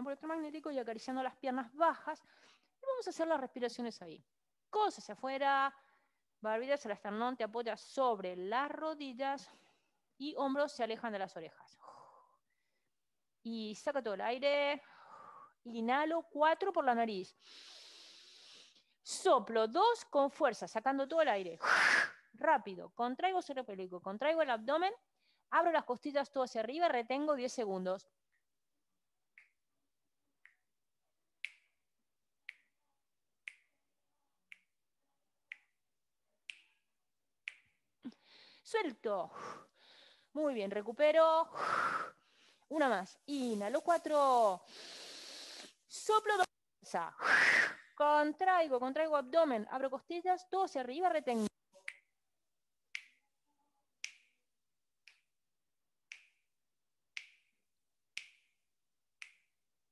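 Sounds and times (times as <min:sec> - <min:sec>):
finger snaps: 0:29.4 - 0:29.6, 0:30.4 - 0:30.7, 0:31.4 - 0:31.8, 0:32.4 - 0:32.8, 0:33.4 - 0:33.8, 0:34.5 - 0:34.8, 0:35.5 - 0:35.8, 0:36.5 - 0:36.8, 0:37.4 - 0:37.8, 0:51.8 - 0:52.1, 0:52.9 - 0:53.3, 0:54.0 - 0:54.4, 0:55.0 - 0:55.4, 0:56.1 - 0:56.5, 0:57.1 - 0:57.5, 0:58.1 - 0:58.6, 0:59.2 - 0:59.5.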